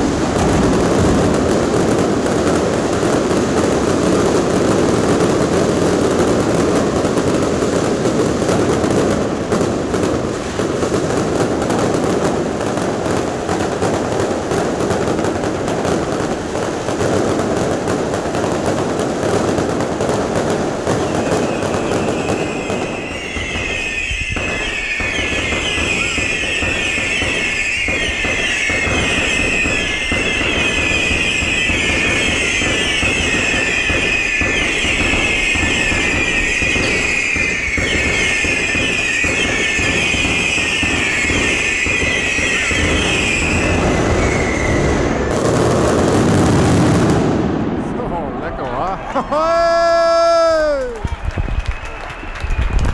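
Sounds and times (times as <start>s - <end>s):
fireworks bangs and crackling: 0.0s - 52.9s
whistling fireworks: 0.0s - 52.9s.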